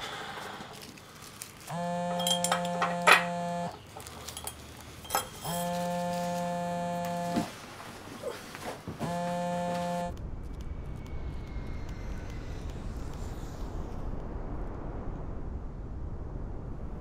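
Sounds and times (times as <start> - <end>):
electronic buzzing tone: 1.7 - 10.2.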